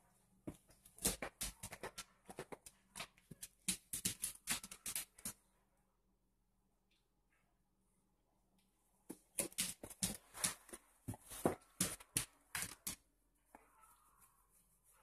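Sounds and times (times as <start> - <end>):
dog paws tapping and scuffing: 0.4 - 5.5, 9.1 - 15.0.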